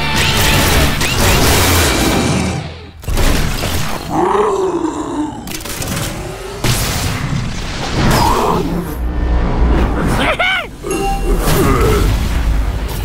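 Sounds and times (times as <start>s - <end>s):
pitched roar: 4.1s - 6.6s
background music: 8.2s - 13.0s.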